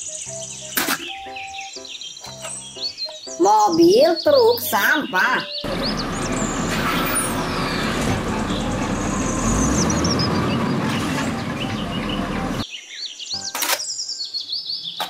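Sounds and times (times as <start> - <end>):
background music: 0.0 - 12.7
chirping: 0.0 - 15.0
garbage truck running: 5.5 - 12.6.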